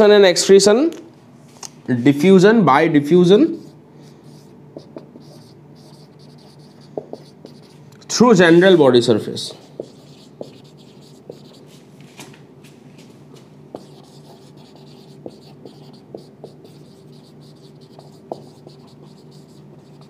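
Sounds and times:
faint steady hum: 0.0 - 20.0
marker squeaking on whiteboard: 3.6 - 8.8, 9.4 - 11.8, 13.7 - 20.0.

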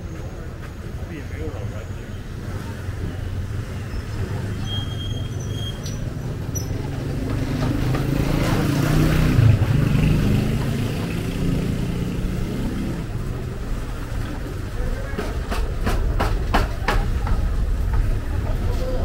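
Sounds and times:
vehicle engine passing: 5.4 - 15.5.

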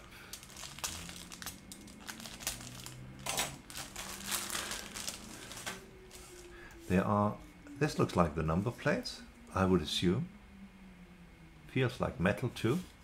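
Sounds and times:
plastic bag crinkling: 0.0 - 6.5.

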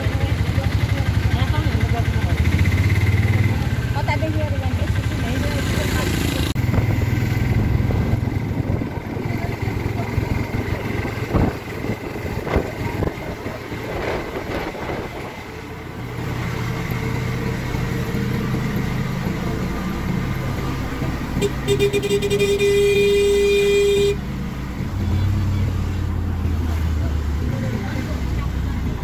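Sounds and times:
auto-rickshaw engine running: 0.0 - 29.0
horn blast: 21.4 - 24.2.

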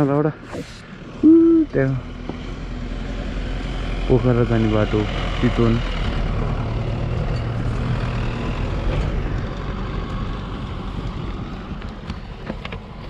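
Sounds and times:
vehicle engine driving away: 0.9 - 12.5.

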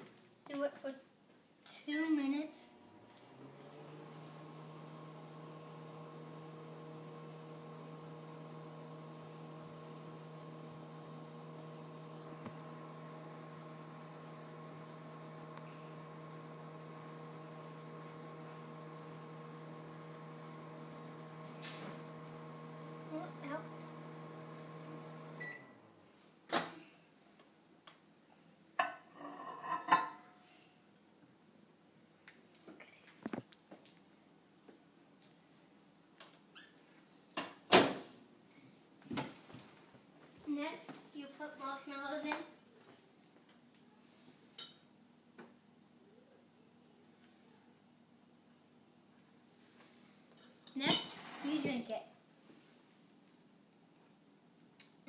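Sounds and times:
microwave oven humming: 2.6 - 25.9.

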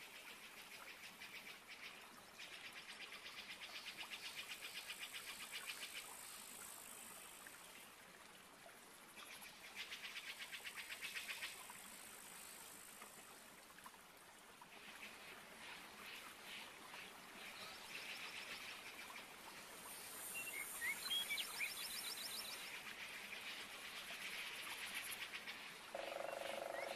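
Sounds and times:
high steady buzz: 26.0 - 26.9.

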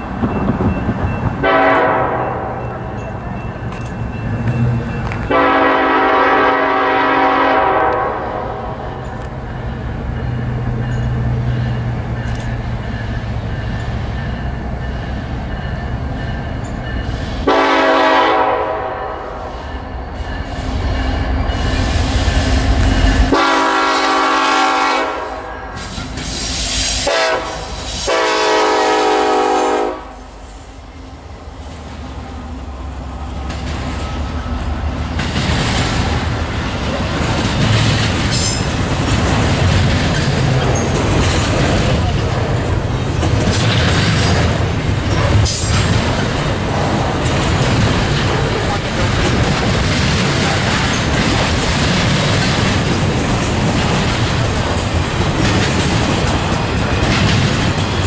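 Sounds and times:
train wheel clatter: 0.0 - 6.8, 8.8 - 18.2, 33.4 - 58.0
locomotive air horn blasts: 1.4 - 2.6, 5.3 - 8.9, 17.4 - 19.7, 23.2 - 25.9, 26.9 - 30.5.

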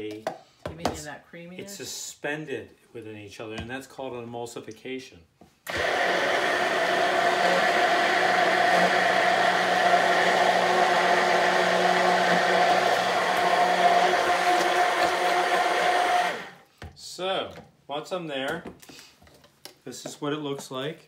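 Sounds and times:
immersion blender whining: 5.7 - 16.7.

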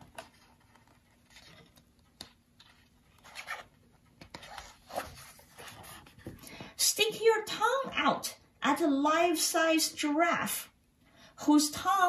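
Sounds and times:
book page rustling: 0.0 - 6.5.

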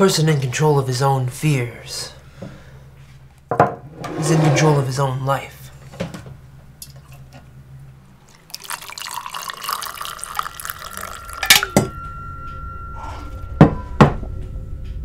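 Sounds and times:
liquid pouring into a mug: 8.3 - 11.9.

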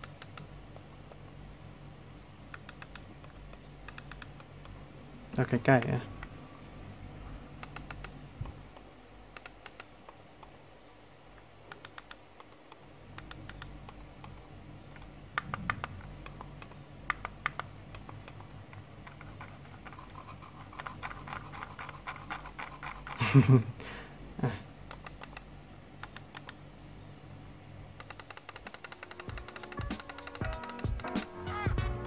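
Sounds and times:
computer mouse clicks: 0.0 - 1.3, 2.5 - 4.8, 7.6 - 10.6, 11.7 - 23.2, 24.9 - 26.6, 28.0 - 31.3.

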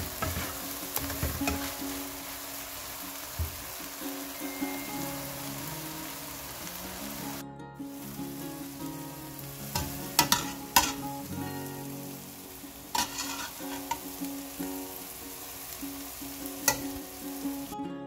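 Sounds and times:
food sizzling in a wok: 0.0 - 17.9
light background music: 0.0 - 18.0
metal spoon clinking on wok: 9.7 - 11.1, 16.6 - 17.0.

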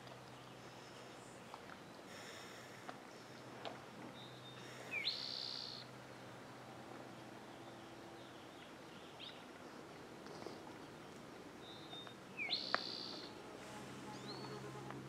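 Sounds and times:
faint background noise: 0.0 - 15.0
songbirds chirping: 0.0 - 15.0
whistled bird call: 4.4 - 5.8, 11.6 - 13.3.

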